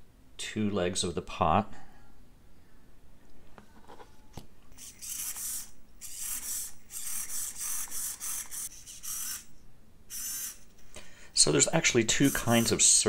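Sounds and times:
servo whirring in short bursts: 4.7s - 9.5s, 10.1s - 10.7s.

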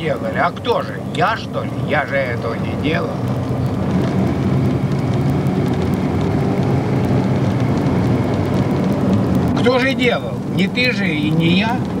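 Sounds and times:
faint crackle: 0.0s - 12.0s
steady rushing noise: 0.0s - 12.0s.

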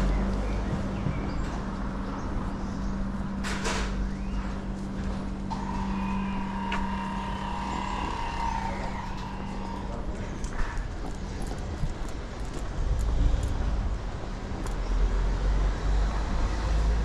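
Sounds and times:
vehicle engine running: 0.0s - 17.0s
steady high whine: 3.4s - 10.8s.

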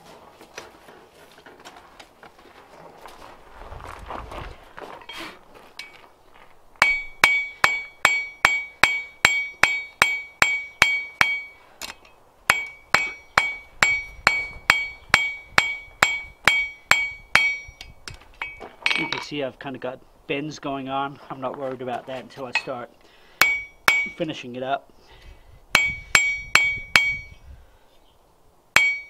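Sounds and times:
hammer striking steel on anvil: 6.8s - 19.2s, 23.4s - 24.3s, 25.8s - 27.4s, 28.8s - 29.0s.

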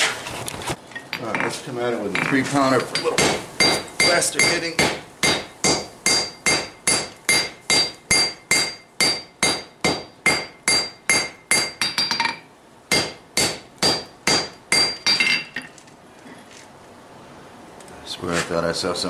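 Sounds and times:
hammer striking steel on anvil: 2.2s - 15.7s.

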